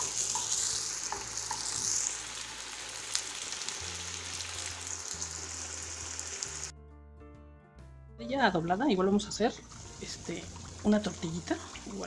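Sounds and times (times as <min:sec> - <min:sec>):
oil sizzling and bubbling: 0:00.0 - 0:06.7, 0:09.3 - 0:12.0
low background music: 0:00.0 - 0:12.0.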